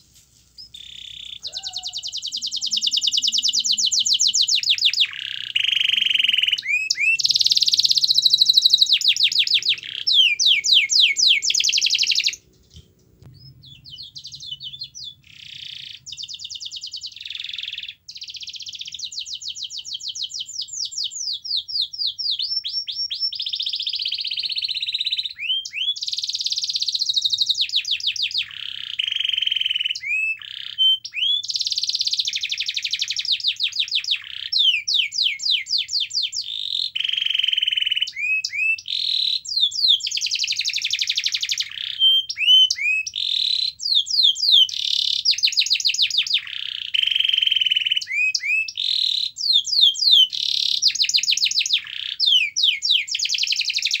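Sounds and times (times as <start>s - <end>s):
canary singing trills: 0.6s - 54.0s.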